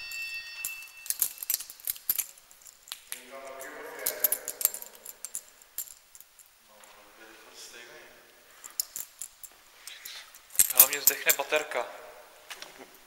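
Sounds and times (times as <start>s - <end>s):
keys jingling and clicking: 0.0s - 6.6s, 8.6s - 11.6s.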